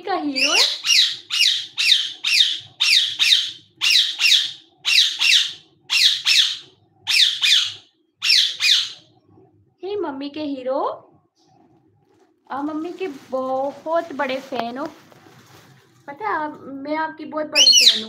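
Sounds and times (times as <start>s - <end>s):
parakeet squawking: 0.3s - 9.1s, 17.6s - 18.0s.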